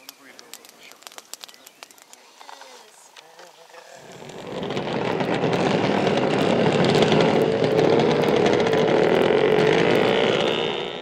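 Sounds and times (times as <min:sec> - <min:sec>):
small engine running at high revs: 0:04.0 - 0:11.0.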